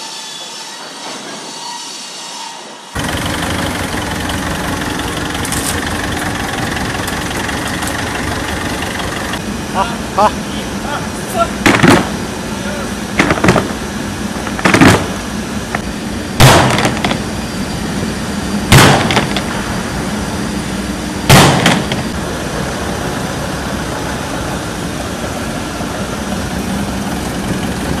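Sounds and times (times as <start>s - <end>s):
vehicle engine idling: 3.0s - 16.4s, 19.2s - 28.0s.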